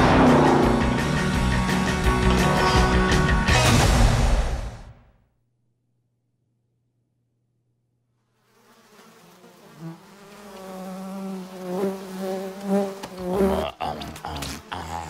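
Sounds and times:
fly buzzing: 8.2 - 15.0.

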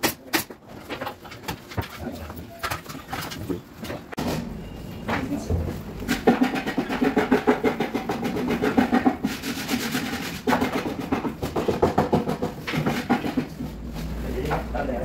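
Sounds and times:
air compressor rattling chug: 6.1 - 13.8.

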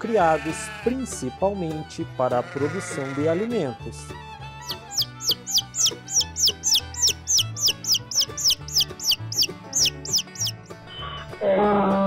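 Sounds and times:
soft background music: 0.0 - 12.0
baby chicks peeping: 4.6 - 10.6
drawn-out animal call: 4.7 - 10.6.

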